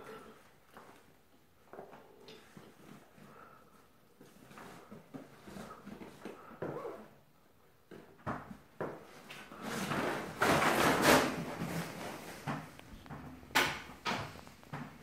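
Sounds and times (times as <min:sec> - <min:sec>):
bag rustling and scraping on tiles: 0:02.4 - 0:07.2, 0:09.1 - 0:13.1.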